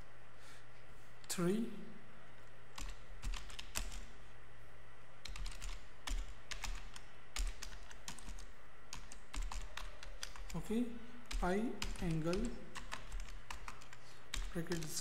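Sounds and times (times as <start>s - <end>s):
low steady hum: 0.0s - 15.0s
keyboard typing: 2.7s - 4.1s, 5.2s - 10.7s, 11.3s - 15.0s.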